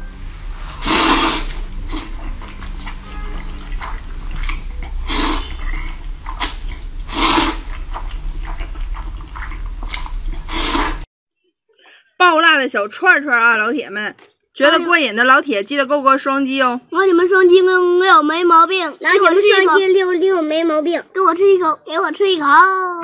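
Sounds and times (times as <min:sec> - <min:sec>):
person slurping noodles: 0:00.6 - 0:11.1
wet mouth and chewing noises: 0:00.8 - 0:11.1.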